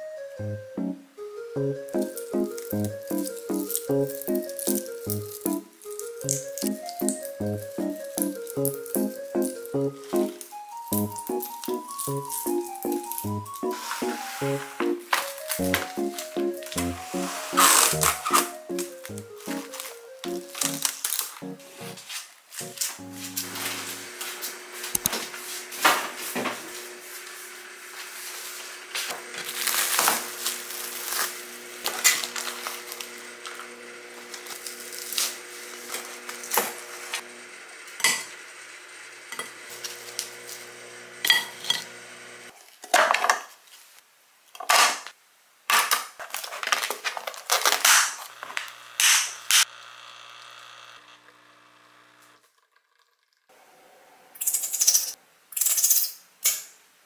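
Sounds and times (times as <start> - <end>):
scraping strokes: 17.0 - 18.6.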